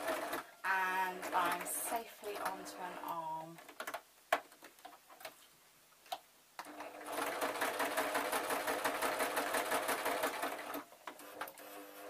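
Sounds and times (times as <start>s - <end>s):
sewing machine stitching: 0.0s - 0.5s, 6.6s - 12.0s.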